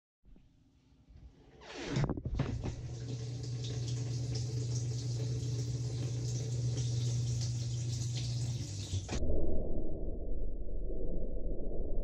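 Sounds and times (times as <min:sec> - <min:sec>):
water rushing into dishwasher: 0:01.7 - 0:09.2
low machine hum: 0:02.2 - 0:09.4.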